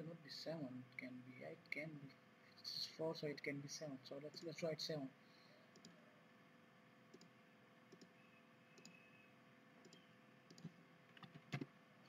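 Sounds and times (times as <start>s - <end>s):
faint steady hum: 0.0s - 12.0s
computer mouse clicks: 5.7s - 6.0s, 7.1s - 9.2s, 9.8s - 11.7s.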